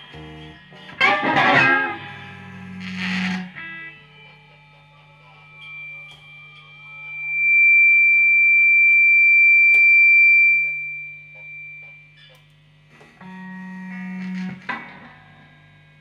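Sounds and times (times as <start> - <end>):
steady high pure tone: 0.0 - 12.5
faint steady hum: 0.0 - 16.0
low buzzing note: 0.0 - 16.0.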